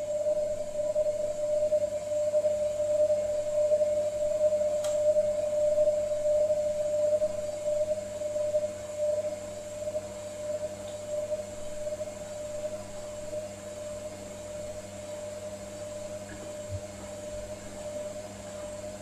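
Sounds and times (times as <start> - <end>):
motor whine: 0.0 - 19.0
washing machine drum humming: 9.3 - 19.0.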